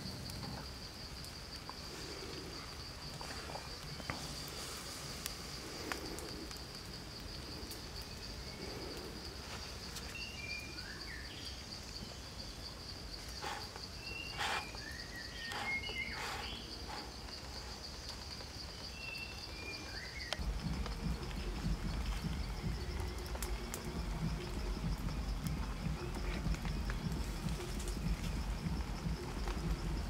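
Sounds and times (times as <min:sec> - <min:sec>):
pulsing insect trill: 0:00.0 - 0:30.0
bird chirps: 0:13.4 - 0:17.1.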